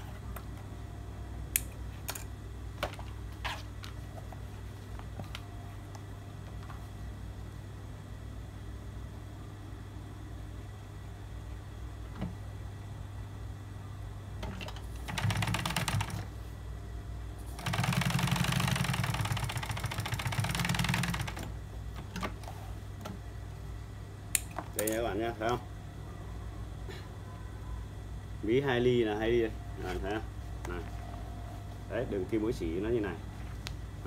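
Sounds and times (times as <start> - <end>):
steady low hum: 0.0 - 34.0
sewing machine stitching: 17.6 - 21.5.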